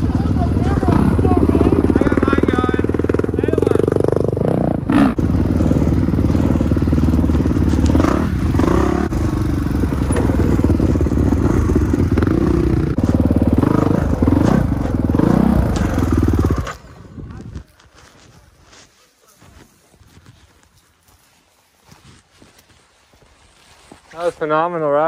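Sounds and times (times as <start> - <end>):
dirt bike engine revving: 0.0 - 17.2.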